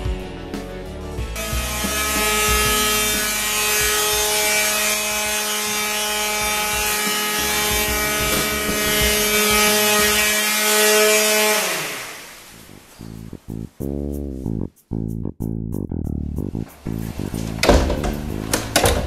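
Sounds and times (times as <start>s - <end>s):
sandpaper hissing on wood: 1.4s - 13.3s
electric sander motor whine: 1.5s - 12.3s.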